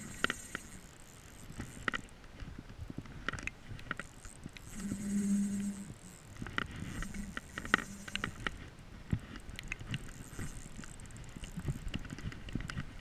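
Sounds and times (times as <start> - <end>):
spinning reel being cranked: 0.0 - 2.1, 3.9 - 8.6, 9.3 - 12.4.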